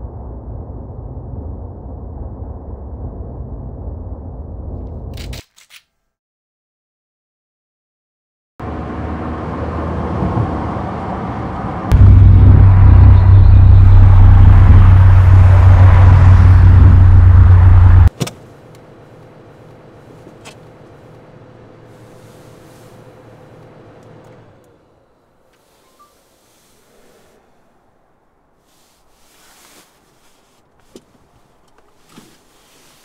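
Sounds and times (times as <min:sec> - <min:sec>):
loud deep rumble: 0:00.0 - 0:05.2, 0:08.7 - 0:18.1
car driving noise inside cabin: 0:08.6 - 0:25.8
faint steady hum: 0:11.9 - 0:32.9.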